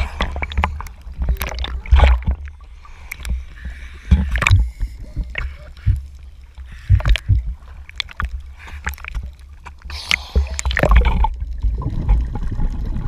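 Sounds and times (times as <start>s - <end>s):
water sloshing and gurgling: 0.0s - 13.0s.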